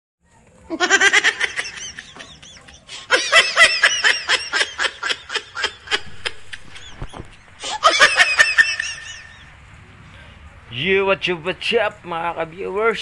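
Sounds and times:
high-pitched laughter: 0.7s - 9.5s.

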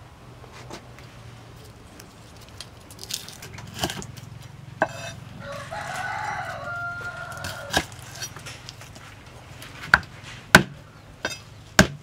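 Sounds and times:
rooster crowing: 5.3s - 8.2s.

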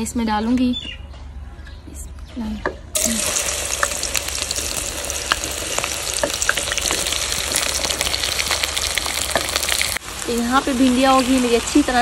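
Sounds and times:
oil sizzling and popping: 3.0s - 12.0s.

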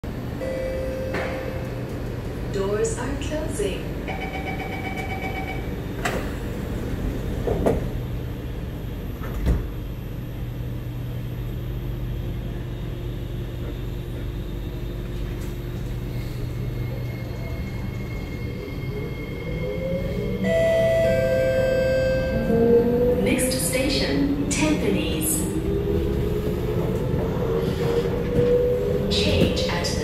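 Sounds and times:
low equipment hum: 0.1s - 30.0s
train doors knocking shut: 7.4s - 8.0s, 9.2s - 9.8s.

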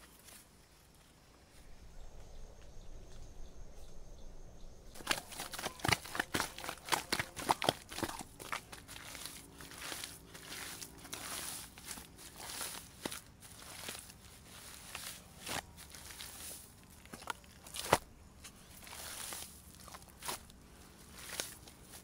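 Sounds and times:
soil crunching and scraping: 0.0s - 22.0s
earth crackling when handled: 5.0s - 22.0s.

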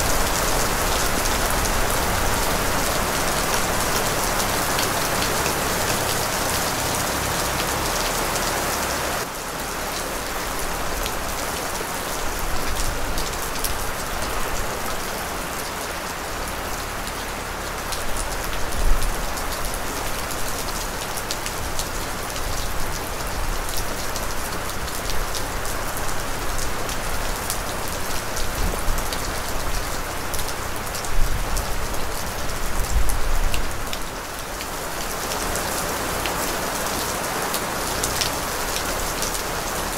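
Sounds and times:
raindrops ticking: 0.0s - 8.5s
steady rain hiss: 0.0s - 39.9s.

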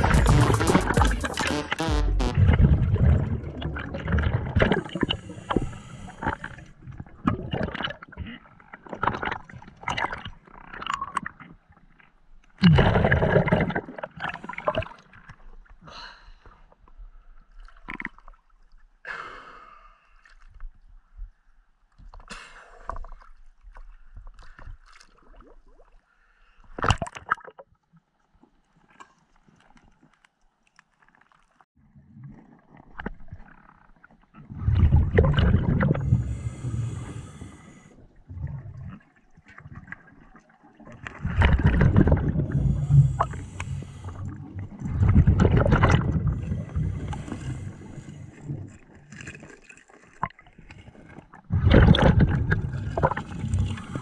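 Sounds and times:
water splashing and sloshing: 0.0s - 15.9s, 16.7s - 19.0s, 21.9s - 54.0s
regulator exhaled bubbles hissing: 4.2s - 6.7s, 35.4s - 38.6s, 41.4s - 48.7s, 51.6s - 54.0s.

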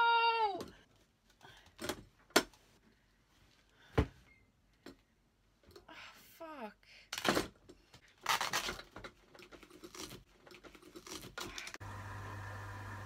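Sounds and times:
water pump humming: 11.8s - 13.0s.

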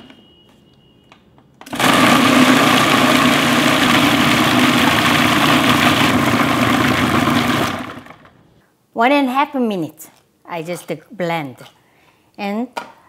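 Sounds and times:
food processor motor running: 1.7s - 8.4s.

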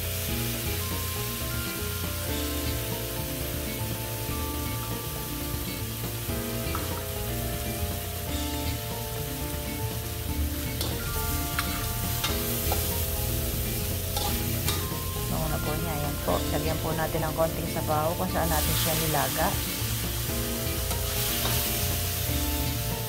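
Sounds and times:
background music: 0.0s - 23.0s
meat and onions sizzling in a wok: 0.0s - 23.0s
metal ladle scraping a pan: 6.7s - 17.4s, 18.5s - 23.0s.

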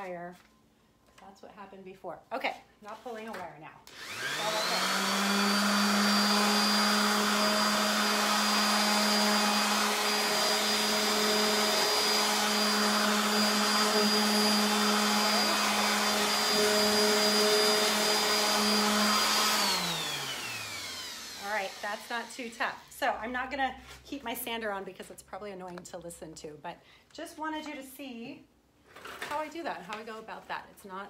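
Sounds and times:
orbital sander whining: 3.9s - 22.9s.

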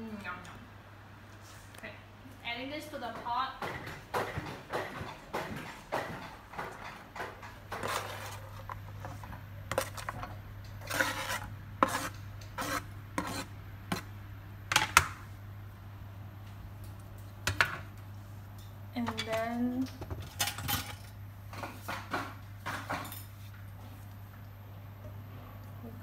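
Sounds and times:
low steady hum: 0.0s - 26.0s
knife scraping a board: 7.7s - 10.2s, 10.8s - 14.1s.

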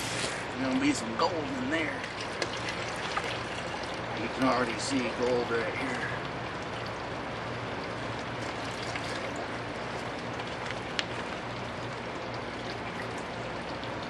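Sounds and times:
pump engine humming: 0.0s - 14.0s
water trickling and splashing: 0.0s - 14.0s.

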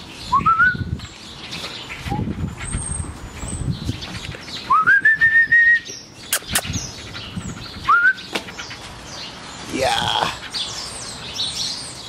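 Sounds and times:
person whistling: 4.7s - 5.8s, 7.9s - 8.2s.

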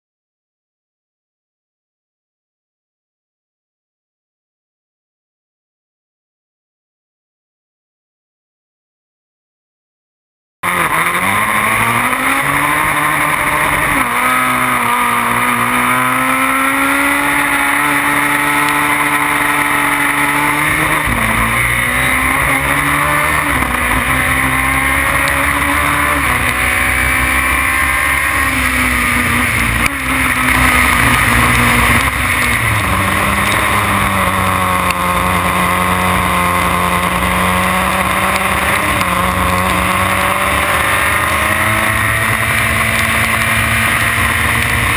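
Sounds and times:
race car engine accelerating: 10.6s - 44.9s.

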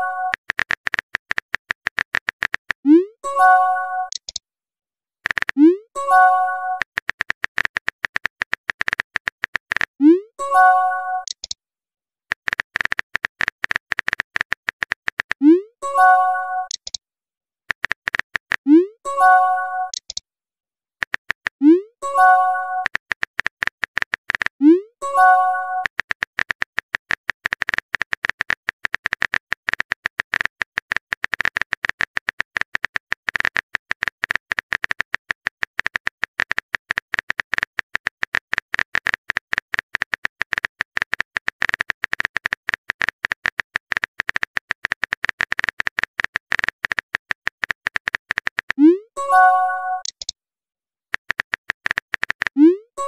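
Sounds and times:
phone keyboard clicks: 0.2s - 2.8s, 4.1s - 4.4s, 5.2s - 5.7s, 6.8s - 10.0s, 11.2s - 11.6s, 12.3s - 15.4s, 16.7s - 17.0s, 17.7s - 18.7s, 19.9s - 20.2s, 21.0s - 21.6s, 22.8s - 24.6s, 25.8s - 48.8s, 50.0s - 50.3s, 51.1s - 52.7s.

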